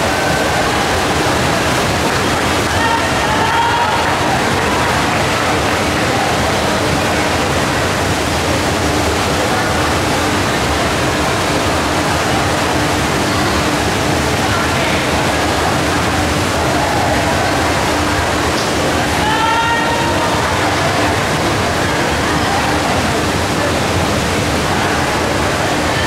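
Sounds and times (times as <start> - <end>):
crowd cheering and shouting: 0.0 - 10.8, 11.4 - 26.0
loud shout: 2.5 - 6.7, 18.9 - 22.8.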